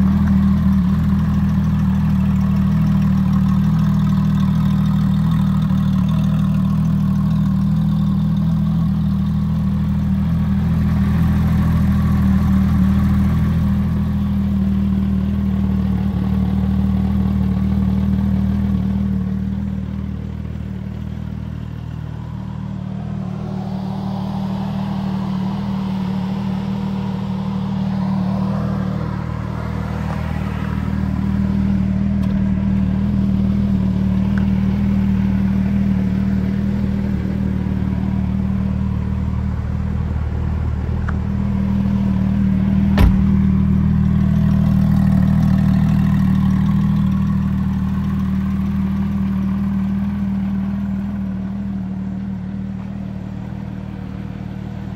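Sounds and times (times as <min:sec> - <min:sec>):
sports car engine idling: 0:00.0 - 0:54.9
sharp knock: 0:43.0 - 0:43.6.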